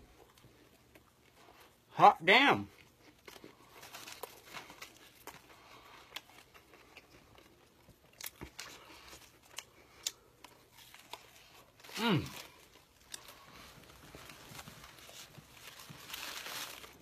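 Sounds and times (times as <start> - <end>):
wrapper crinkling: 3.2 - 5.4, 10.8 - 17.0.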